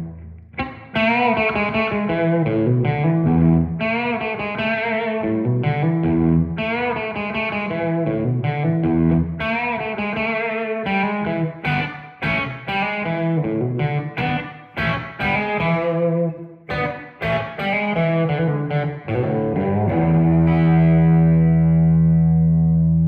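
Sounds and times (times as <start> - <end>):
overdriven electric guitar: 0.0 - 23.0.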